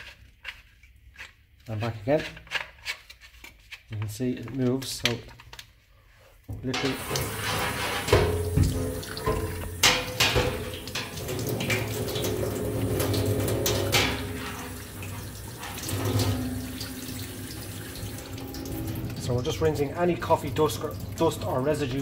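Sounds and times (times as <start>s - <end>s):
tap water running into sink: 6.6s - 22.0s.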